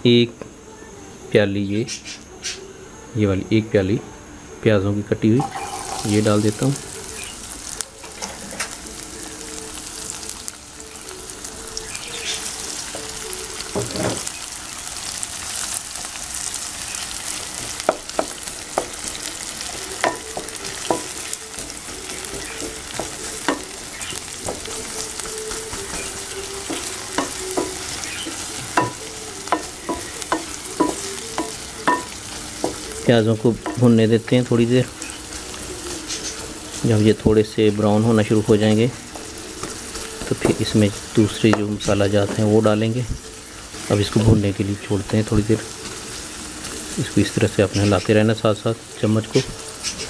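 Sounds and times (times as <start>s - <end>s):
onions sizzling in oil: 5.0s - 50.0s
spatula knocking and scraping pan: 5.4s - 6.2s, 20.0s - 33.0s.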